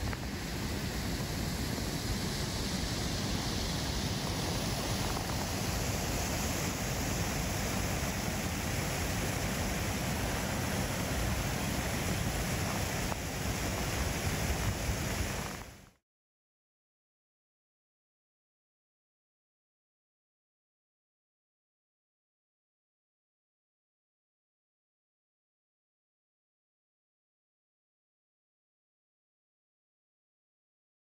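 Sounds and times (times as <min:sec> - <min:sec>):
stream rushing over rocks: 0:00.0 - 0:16.0.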